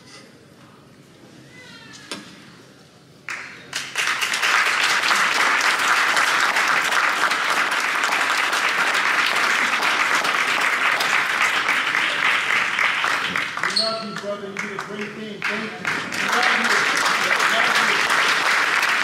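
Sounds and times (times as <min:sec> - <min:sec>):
large audience applauding: 0:03.3 - 0:19.0.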